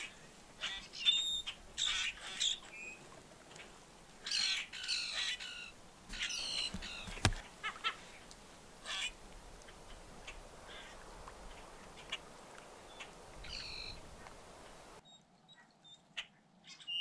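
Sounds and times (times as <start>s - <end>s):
bird squawking: 4.3s - 8.0s.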